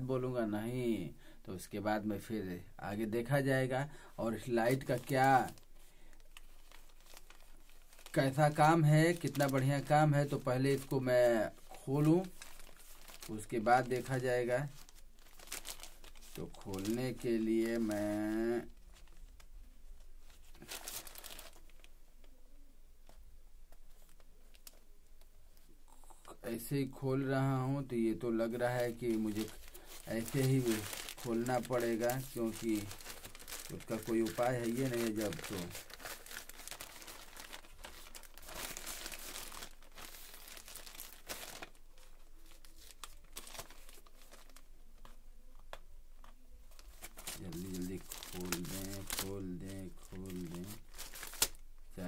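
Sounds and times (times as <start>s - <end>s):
plastic bag crinkling: 4.3s - 19.5s, 20.2s - 21.9s, 28.4s - 45.2s, 46.7s - 52.0s.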